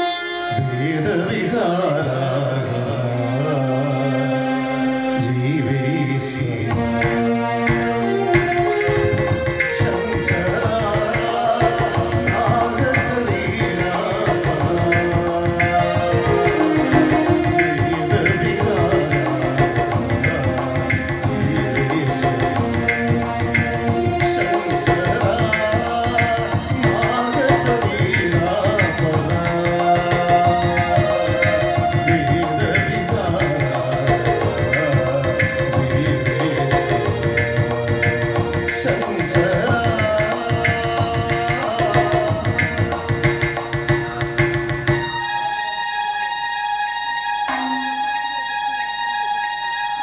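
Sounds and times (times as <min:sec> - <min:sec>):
percussion beat: 0:06.6 - 0:50.0
men singing devotional song: 0:09.8 - 0:43.0.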